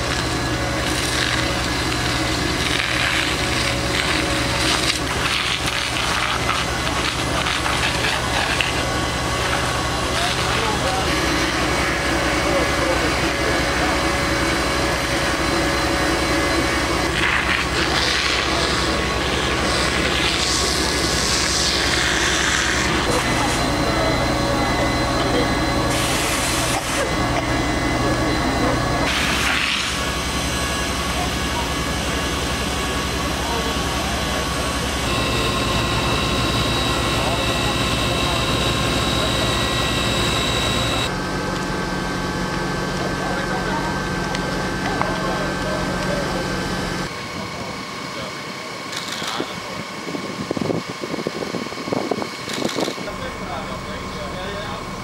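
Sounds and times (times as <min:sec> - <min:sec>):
diesel engine rumbling: 0:00.0 - 0:48.8, 0:49.4 - 0:55.0
steady low hum: 0:00.0 - 0:55.0
fire crackling and snapping: 0:00.1 - 0:09.7.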